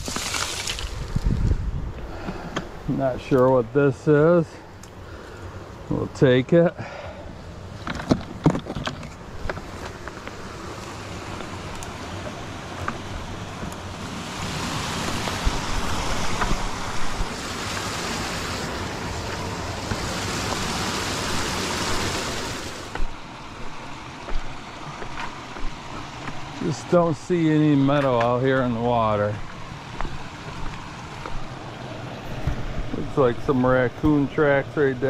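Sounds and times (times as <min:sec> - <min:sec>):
creek water rushing over cascades: 0:09.2 - 0:35.0.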